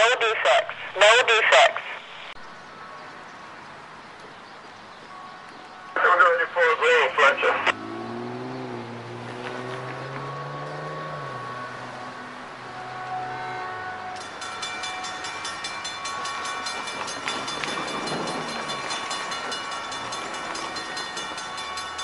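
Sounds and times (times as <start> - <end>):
broad rush of noise: 0.0 - 4.1, 5.8 - 7.8
railroad crossing warning bell: 5.0 - 7.1, 10.8 - 22.0.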